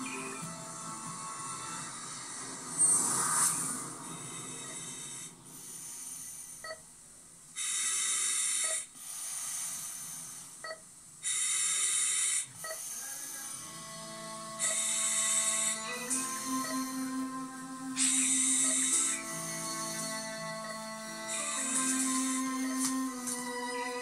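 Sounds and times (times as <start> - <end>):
soft music tones: 0.0 - 5.7, 13.4 - 24.0
heavy breathing through oxygen mask: 1.3 - 6.8, 7.6 - 10.6, 11.2 - 17.3, 17.9 - 23.5.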